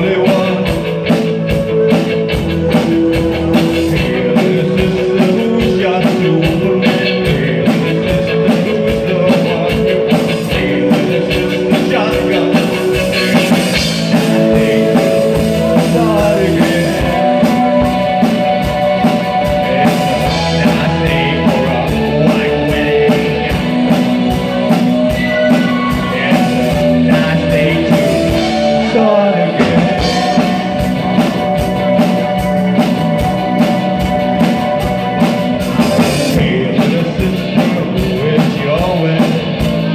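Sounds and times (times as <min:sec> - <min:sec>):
live rock band playing: 0:00.0 - 0:39.9
man singing: 0:00.0 - 0:39.9.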